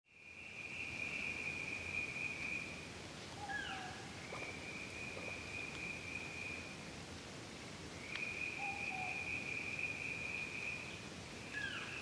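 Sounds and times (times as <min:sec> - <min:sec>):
low hiss: 0:00.1 - 0:12.0.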